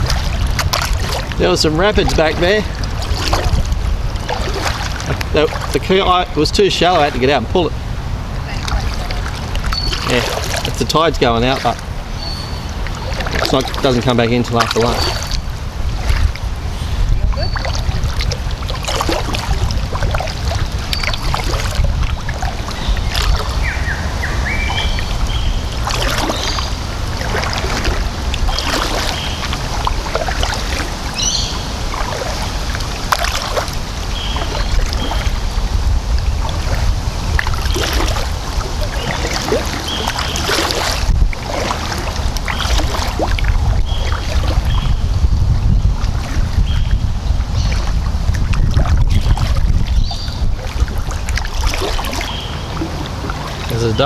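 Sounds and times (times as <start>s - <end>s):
kayak paddle splashing: 0.0s - 54.0s
wind rumble on microphone: 0.0s - 54.0s
bird chirps: 9.7s - 10.1s, 12.1s - 12.7s, 31.2s - 31.7s.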